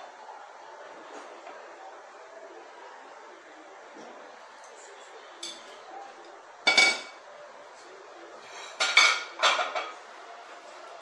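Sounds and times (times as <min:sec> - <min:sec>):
metal kitchenware clanking: 0:06.6 - 0:07.2, 0:08.5 - 0:10.0.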